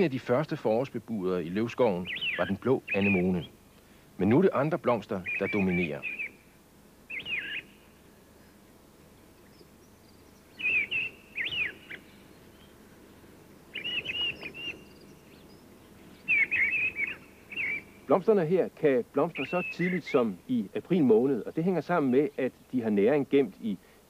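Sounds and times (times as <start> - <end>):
songbird whistling song: 1.5 - 3.6, 5.2 - 18.2, 19.2 - 20.2.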